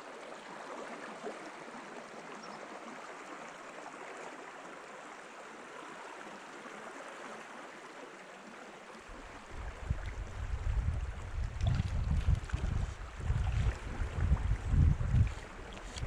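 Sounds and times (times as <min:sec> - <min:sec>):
wind buffeting microphone: 0:09.4 - 0:16.0.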